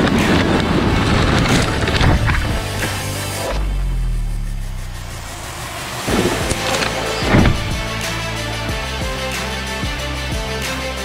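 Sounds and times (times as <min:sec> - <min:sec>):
electric motors whining: 0:00.0 - 0:08.5
tyres spraying gravel: 0:00.0 - 0:11.0.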